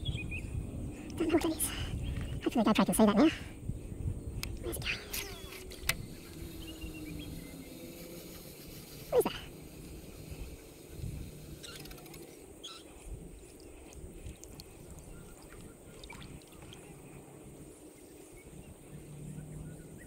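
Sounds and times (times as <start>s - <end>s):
wind and water rumble: 0.0s - 20.0s
faint high chirps: 11.5s - 13.0s.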